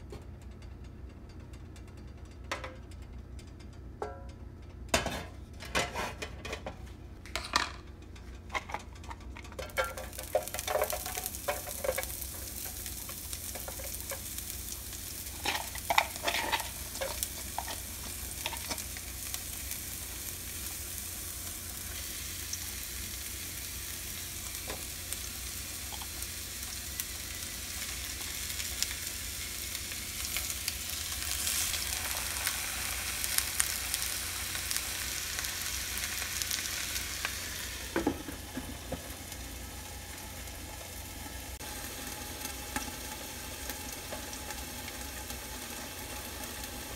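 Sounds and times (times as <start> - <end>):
fish sizzling in hot oil: 9.8 - 46.9.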